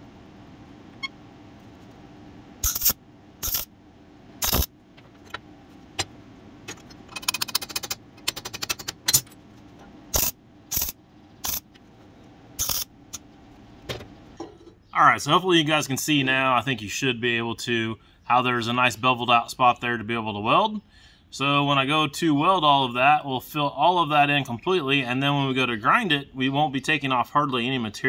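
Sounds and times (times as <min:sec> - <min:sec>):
welder crackling: 0:02.6 - 0:03.7, 0:04.4 - 0:04.7, 0:10.1 - 0:11.7.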